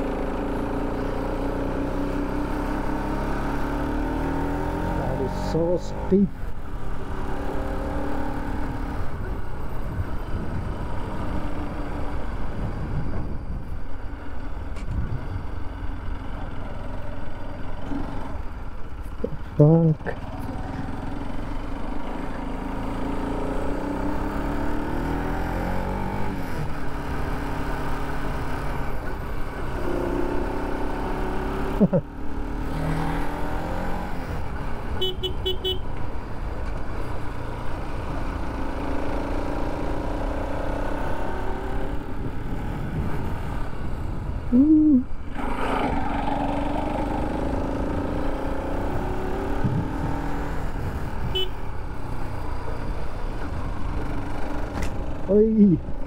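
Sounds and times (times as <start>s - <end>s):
motorcycle engine revving: 0.0s - 12.3s, 20.0s - 56.0s
wind and road noise: 0.0s - 56.0s
horn beeps: 35.0s - 35.9s, 51.3s - 51.6s.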